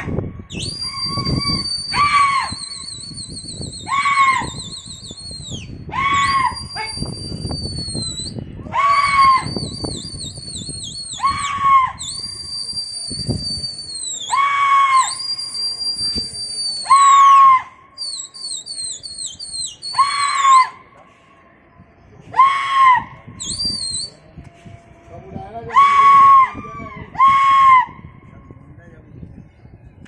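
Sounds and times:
shrill warbling whistles: 0.5s - 20.8s, 23.4s - 24.3s.

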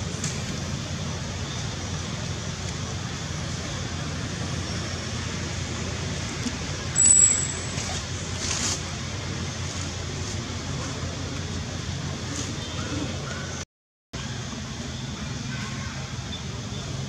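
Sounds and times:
low outdoor rumble: 0.0s - 13.6s
sharp high-pitched chirp: 7.0s - 7.8s.

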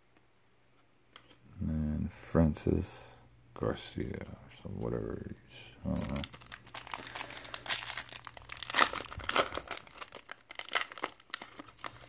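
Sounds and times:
foil wrapper crinkling: 5.8s - 12.0s.

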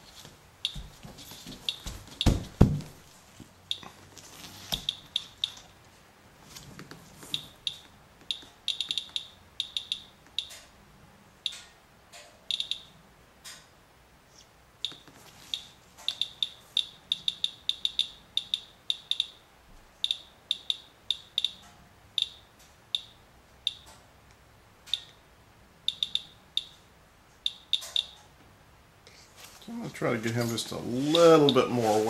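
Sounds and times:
handling thumps: 0.0s - 3.1s
geiger counter chirping: 4.8s - 5.6s, 7.3s - 10.6s, 12.5s - 12.9s, 14.8s - 19.4s, 20.0s - 21.6s, 22.2s - 23.9s, 25.9s - 26.8s, 27.4s - 28.2s.

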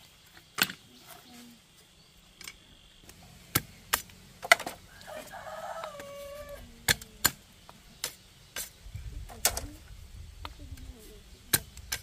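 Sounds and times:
machete striking bamboo: 0.5s - 0.8s, 3.1s - 4.8s, 6.8s - 7.4s, 11.5s - 12.0s
rooster crowing: 4.8s - 6.8s.

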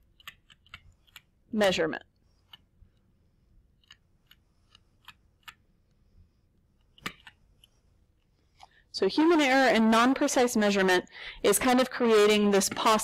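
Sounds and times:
stylus tapping tablet screen: 0.0s - 9.5s.

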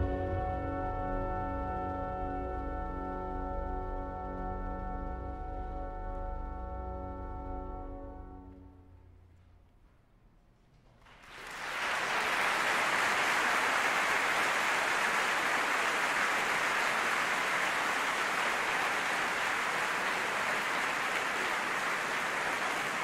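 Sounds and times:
audience applauding: 11.0s - 23.0s.

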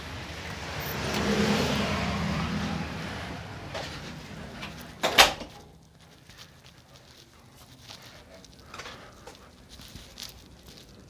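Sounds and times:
outdoor rushing noise: 0.0s - 6.6s.

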